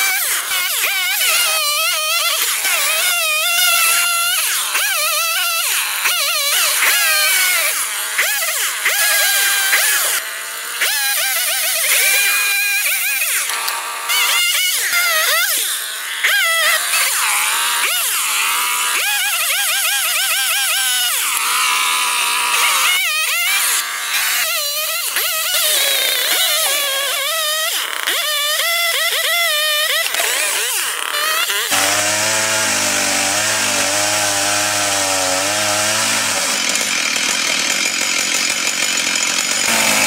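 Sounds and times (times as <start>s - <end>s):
chainsaw cutting wood: 0.0s - 40.0s.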